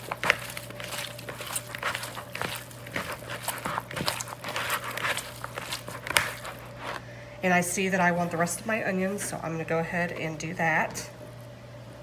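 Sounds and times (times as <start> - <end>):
hands squishing raw meat: 0.0 - 7.1.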